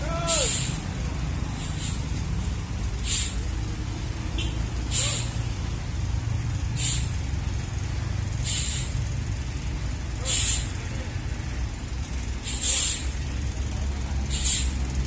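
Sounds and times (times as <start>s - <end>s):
truck diesel engine droning: 0.0s - 15.0s
short sharp hisses: 0.3s - 0.8s, 1.5s - 2.1s, 3.0s - 3.4s, 4.9s - 5.4s, 6.8s - 7.1s, 8.4s - 9.0s, 10.2s - 10.8s, 12.4s - 13.2s, 14.3s - 14.8s.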